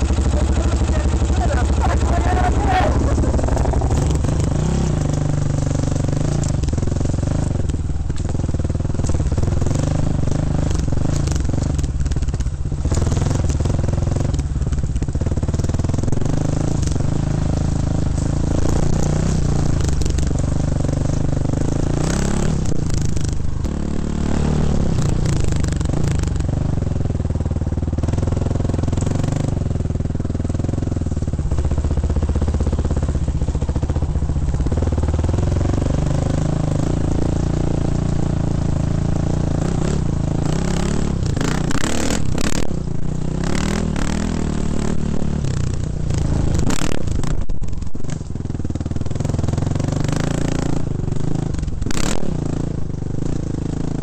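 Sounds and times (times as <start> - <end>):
dirt bike engine revving: 0.0 - 11.8, 15.0 - 47.5, 49.2 - 54.0
bike rattling over rough ground: 0.0 - 54.0.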